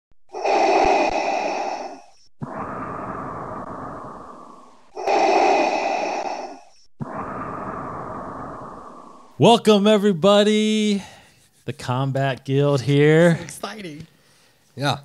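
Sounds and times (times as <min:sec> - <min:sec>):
mechanical respirator breathing: 0:00.3 - 0:09.3.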